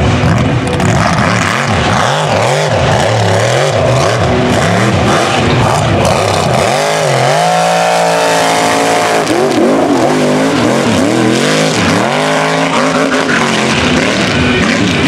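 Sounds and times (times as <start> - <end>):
truck engine revving hard: 0.0 - 15.0.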